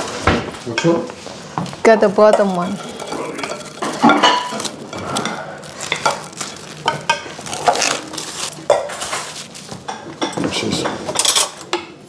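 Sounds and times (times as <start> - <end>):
spoon scraping and tapping pot: 2.2 - 4.7
ceramic dishes clinking: 2.2 - 11.7.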